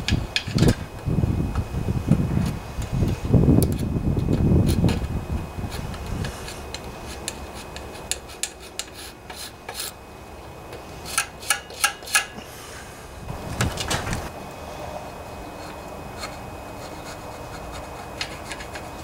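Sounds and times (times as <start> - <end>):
metal scraper rasping on metal: 5.8 - 10.0, 11.0 - 12.4, 15.5 - 19.0.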